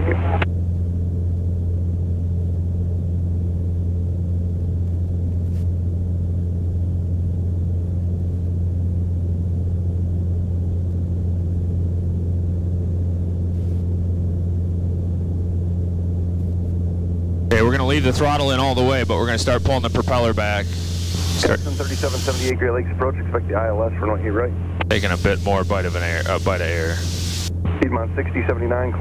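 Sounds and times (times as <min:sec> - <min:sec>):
aircraft engine and propeller drone: 0:00.0 - 0:29.0.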